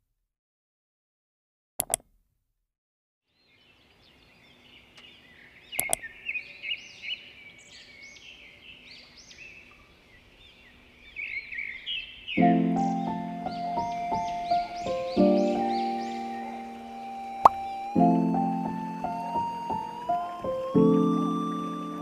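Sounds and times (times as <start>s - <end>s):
sharp double clicks: 1.8s - 2.2s, 5.8s - 6.1s
birds chirping and singing: 3.4s - 22.0s.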